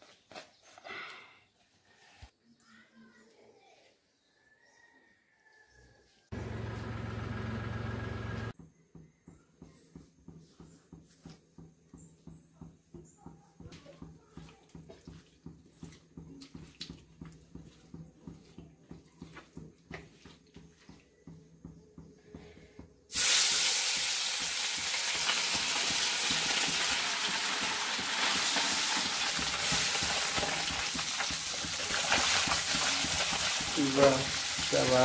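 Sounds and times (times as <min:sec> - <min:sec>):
hands squelching fish in bowl: 0:14.4 - 0:21.0
fish sizzling in hot oil: 0:23.1 - 0:35.0.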